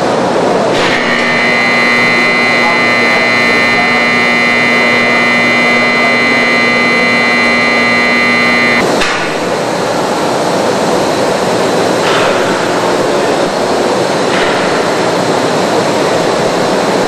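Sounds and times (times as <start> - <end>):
machinery low hum: 0.7 - 8.9
machinery high whine: 0.7 - 9.6.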